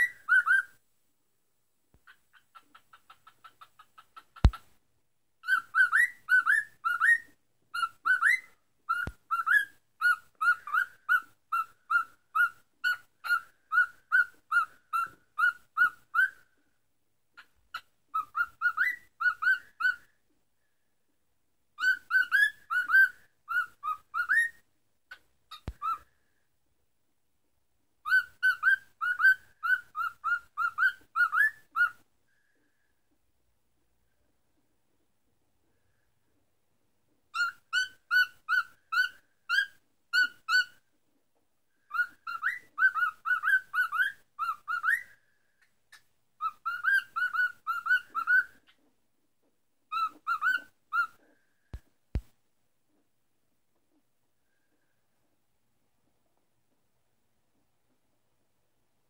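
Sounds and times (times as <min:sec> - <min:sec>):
cockatiel whistling: 0:00.0 - 0:00.8, 0:05.4 - 0:16.4, 0:18.1 - 0:20.1, 0:21.8 - 0:24.6, 0:25.5 - 0:26.1, 0:28.0 - 0:32.0, 0:37.3 - 0:40.8, 0:41.9 - 0:45.2, 0:45.9 - 0:48.8, 0:49.9 - 0:51.4.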